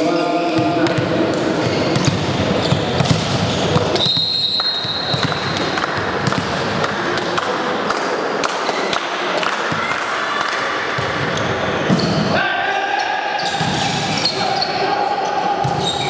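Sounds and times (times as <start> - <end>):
sports hall noise: 0.0 - 16.0
volleyball bouncing on floor: 0.5 - 9.0
referee's whistle: 4.0 - 5.2.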